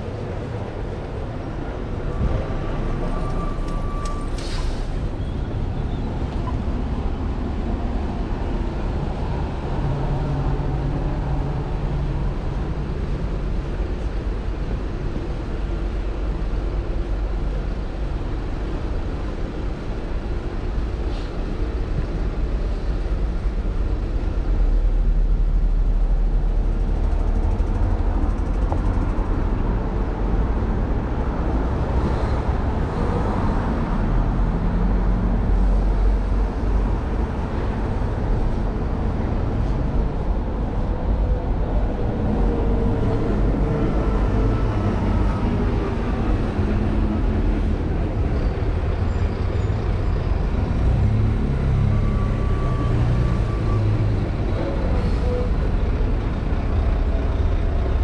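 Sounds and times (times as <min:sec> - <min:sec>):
vehicle engines passing: 0:00.0 - 0:58.0.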